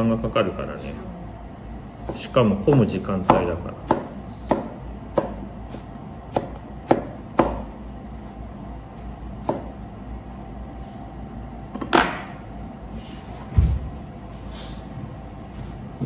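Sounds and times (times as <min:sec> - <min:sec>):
knife chopping on cutting board: 0:02.0 - 0:07.8, 0:09.4 - 0:09.8.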